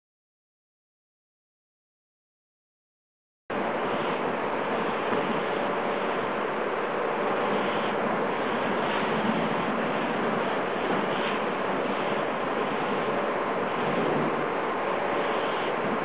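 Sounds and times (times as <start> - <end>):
conveyor machinery running: 3.5 - 16.0
faint steady hum: 3.5 - 16.0.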